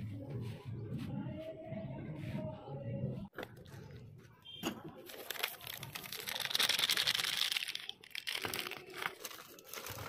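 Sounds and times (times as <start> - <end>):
plastic bag crinkling: 5.0 - 10.0.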